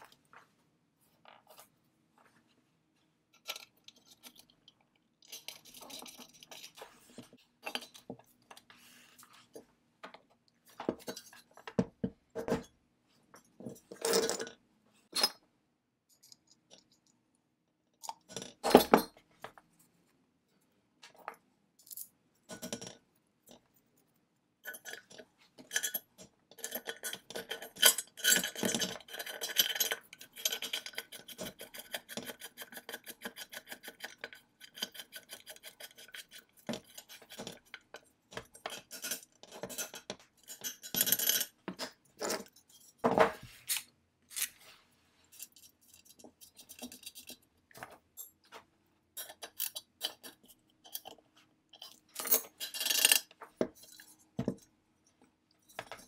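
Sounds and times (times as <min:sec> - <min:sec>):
screwdriver scraping: 0:45.3 - 0:47.4
small metal parts clinking: 0:49.2 - 0:54.2.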